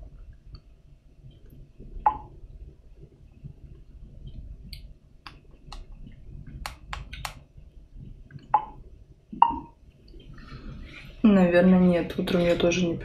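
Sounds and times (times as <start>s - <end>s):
light sharp clicks and taps: 4.2s - 7.4s.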